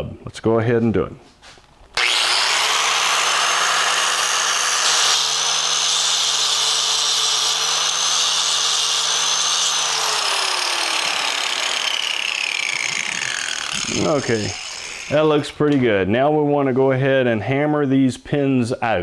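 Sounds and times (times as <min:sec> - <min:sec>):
angle grinder grinding steel: 0:02.0 - 0:15.9.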